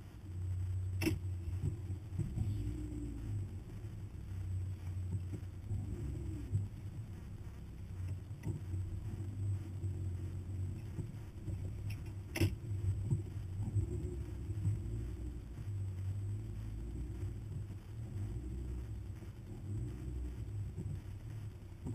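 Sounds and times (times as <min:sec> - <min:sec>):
truck engine running low: 0:00.0 - 0:21.9.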